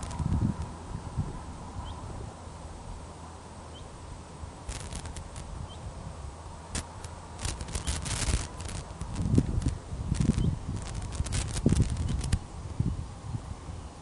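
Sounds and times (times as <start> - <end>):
wind rumble on microphone: 0.0 - 3.1, 4.5 - 14.0
sharp clicks: 4.7 - 5.5, 6.8 - 12.4.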